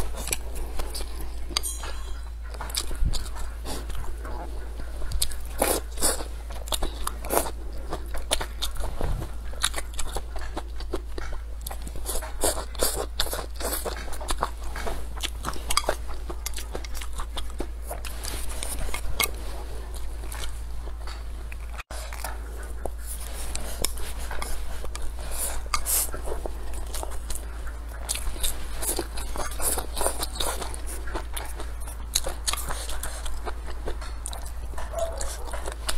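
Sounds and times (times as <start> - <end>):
crunchy chewing: 0.0 - 1.7, 2.3 - 35.9
low hum: 0.0 - 12.0.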